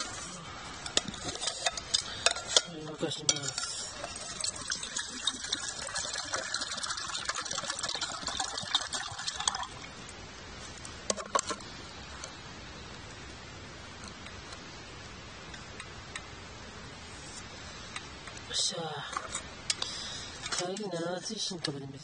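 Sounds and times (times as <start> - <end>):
water pouring into metal mug: 3.4 - 10.0.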